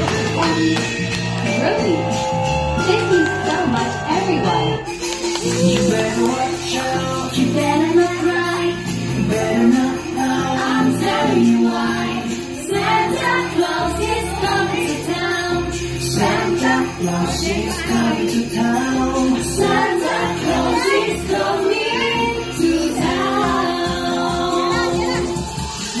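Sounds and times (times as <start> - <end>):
upbeat song with steady beat: 0.0 - 26.0
woman singing: 20.7 - 25.4.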